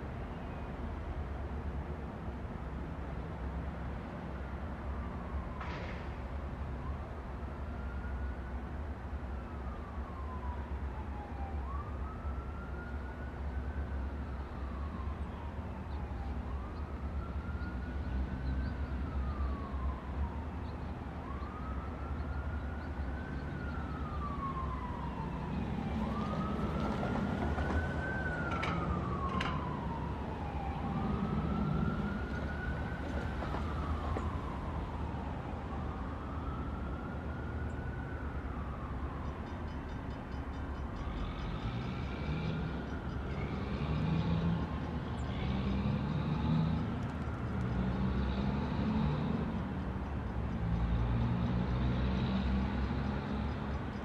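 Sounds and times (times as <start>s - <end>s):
siren wailing: 9.5s - 39.9s
low rumble of train: 23.7s - 36.7s.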